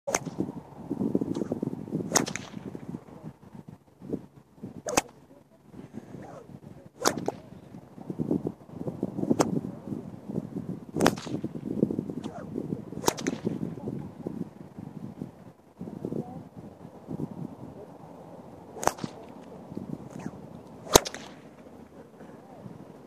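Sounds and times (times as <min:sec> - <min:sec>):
whip cracking: 0:00.1 - 0:00.4, 0:01.3 - 0:02.8, 0:04.9 - 0:05.2, 0:07.0 - 0:07.5, 0:09.3 - 0:09.6, 0:11.0 - 0:11.6, 0:12.2 - 0:13.7, 0:18.7 - 0:21.7.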